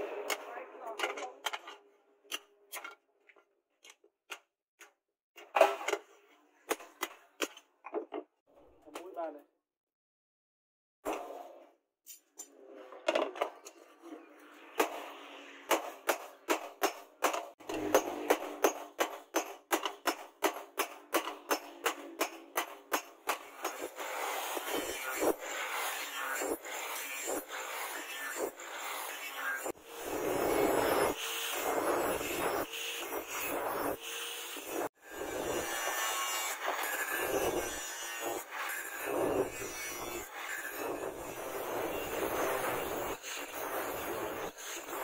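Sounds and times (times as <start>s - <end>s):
hammer striking steel: 15.7s - 24.0s
angle grinder grinding: 23.4s - 45.0s.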